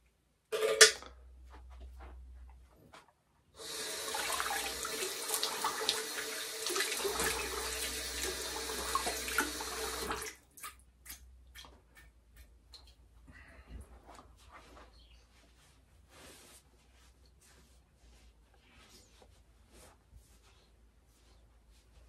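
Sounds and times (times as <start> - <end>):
tap running into sink: 3.8 - 10.3
water splashes and drips: 3.9 - 13.0.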